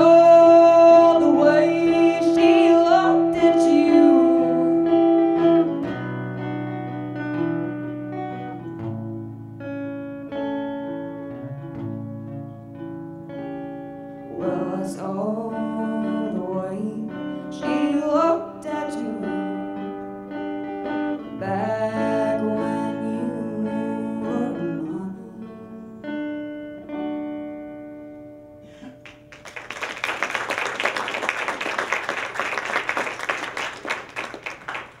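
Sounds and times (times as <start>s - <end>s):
woman singing: 0.0s - 5.4s, 14.3s - 19.9s, 21.2s - 26.0s
plucked guitar: 0.0s - 29.5s
audience applause: 28.8s - 35.0s.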